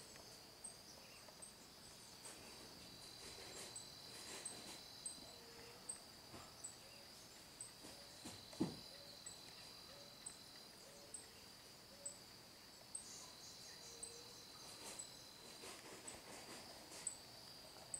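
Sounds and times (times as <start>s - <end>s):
insects buzzing: 0.0s - 17.9s
dull thump: 8.2s - 8.9s.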